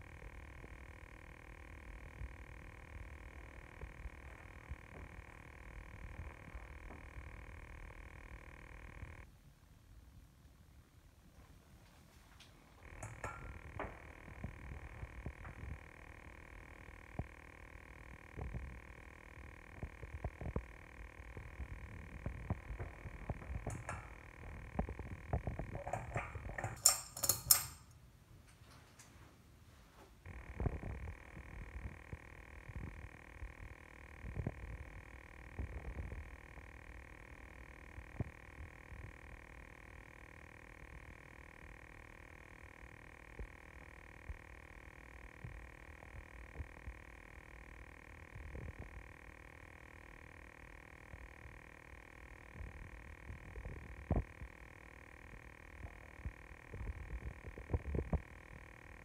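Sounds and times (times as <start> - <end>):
low thumps and crackle: 0.0 - 9.3, 12.3 - 27.0, 30.2 - 39.4, 51.0 - 59.0
ceiling fan humming and ticking: 0.0 - 59.0
pull chain rattling: 26.6 - 27.9.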